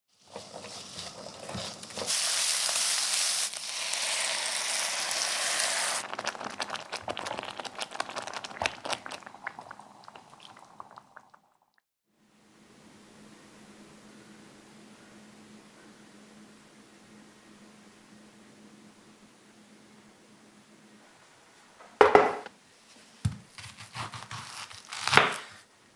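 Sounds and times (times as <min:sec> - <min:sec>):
water hissing in hot pan: 0:00.1 - 0:11.3
vegetables sizzling in frying pan: 0:00.2 - 0:07.4.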